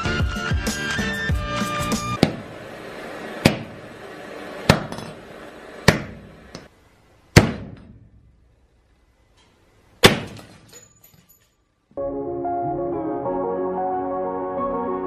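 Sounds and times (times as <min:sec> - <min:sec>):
sharp hard knocks with ringing: 0:10.0 - 0:11.0.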